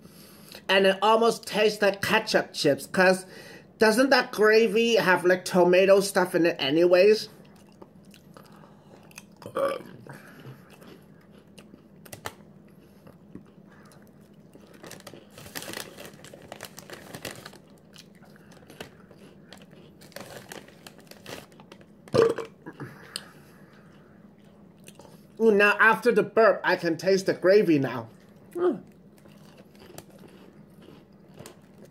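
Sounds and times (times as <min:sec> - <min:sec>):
crunchy chips chewing: 0:07.4 - 0:25.4, 0:27.9 - 0:31.9
person burping: 0:09.4 - 0:10.3, 0:22.1 - 0:23.2
chip bag crinkling: 0:13.8 - 0:22.3, 0:29.1 - 0:31.9.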